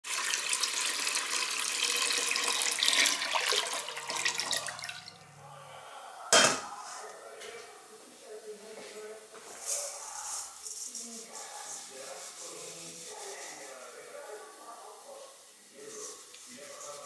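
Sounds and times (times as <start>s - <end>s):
water pouring into a saucepan: 0.0s - 5.3s.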